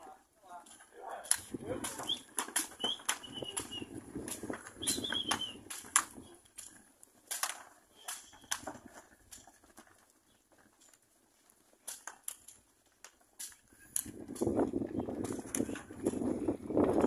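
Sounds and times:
hooves trotting on dirt: 0.0 - 17.0
high bird chirps: 4.8 - 5.6.

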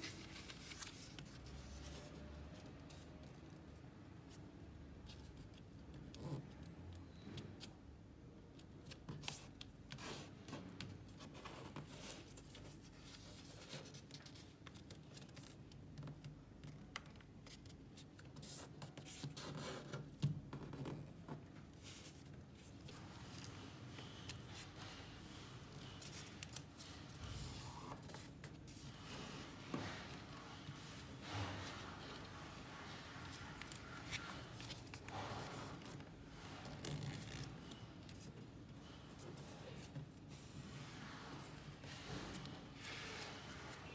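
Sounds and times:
paper crinkling and rustling: 0.0 - 3.5, 20.9 - 43.9.

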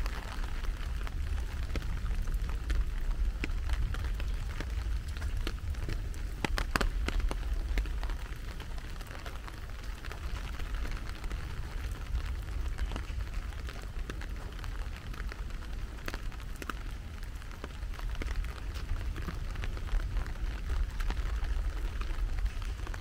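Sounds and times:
rain drops tapping: 0.0 - 23.0.

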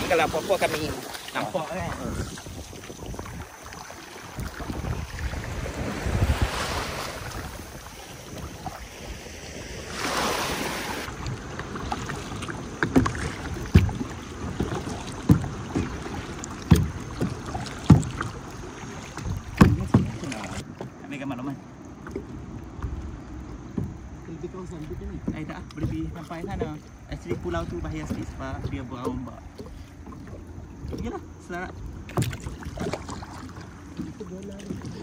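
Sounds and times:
wind on microphone: 0.0 - 20.6
paddle knocks and splashes: 0.0 - 35.0
water swishes: 0.0 - 35.0.

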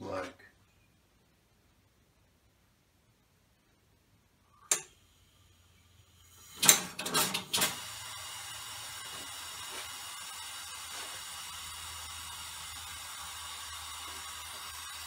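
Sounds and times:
sharp click: 4.7 - 4.9, 6.6 - 7.8
air blasts: 4.7 - 15.0
air engine hissing: 4.8 - 15.0.

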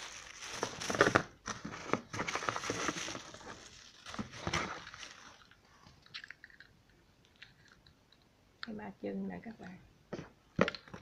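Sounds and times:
rustling: 0.0 - 6.5.

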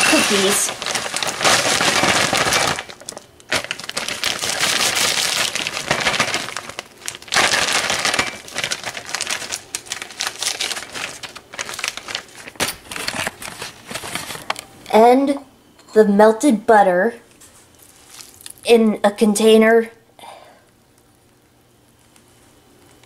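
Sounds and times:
cookie crumbs rustling into a dish: 17.7 - 18.6.

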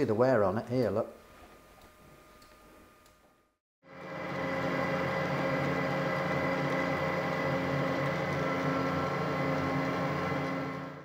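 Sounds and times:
metal lathe running: 3.9 - 11.0.

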